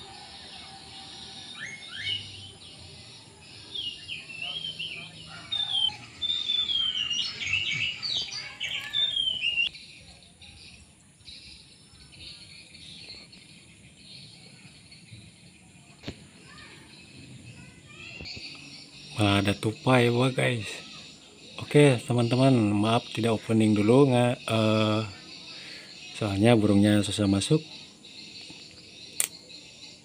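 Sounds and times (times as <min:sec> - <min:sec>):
faint bird chirps: 0:00.0 - 0:30.0
songbird whistling: 0:01.2 - 0:02.6, 0:03.7 - 0:09.7.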